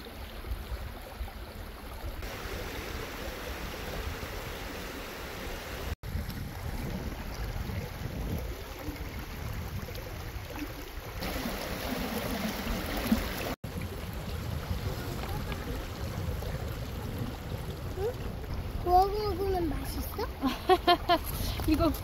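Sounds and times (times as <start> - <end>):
stream water rushing and splashing: 0.0 - 22.0
wind buffeting microphone: 5.8 - 22.0.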